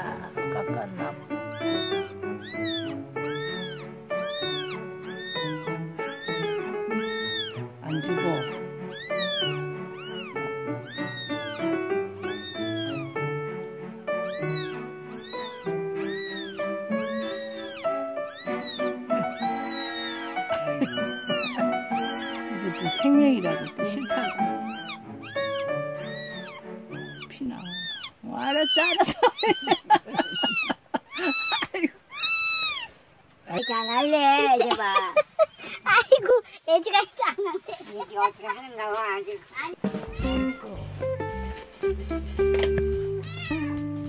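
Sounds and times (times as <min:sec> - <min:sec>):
background music with held notes: 0:00.0 - 0:27.7, 0:39.8 - 0:44.0
kitten mewing: 0:00.9 - 0:13.3, 0:14.2 - 0:34.7, 0:40.0 - 0:41.0, 0:43.2 - 0:43.9.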